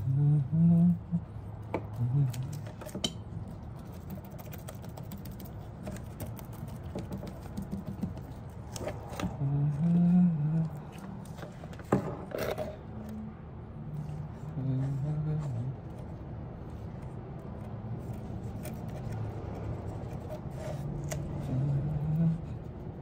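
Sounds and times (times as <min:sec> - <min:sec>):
low steady hum: 0:00.0 - 0:23.0
knocks and scrapes of plastic cup: 0:05.8 - 0:09.4, 0:11.3 - 0:12.8
low murmur of voice: 0:14.2 - 0:16.0.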